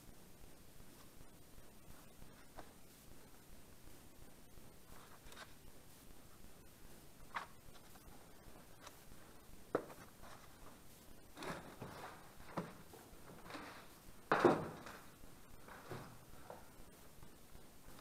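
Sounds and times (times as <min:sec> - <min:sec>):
knocks and scuffs: 0:09.7 - 0:16.7.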